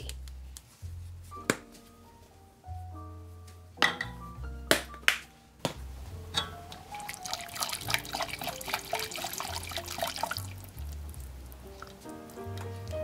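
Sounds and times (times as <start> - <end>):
background music with bass: 0.0 - 13.0
liquid sloshing: 6.4 - 12.0.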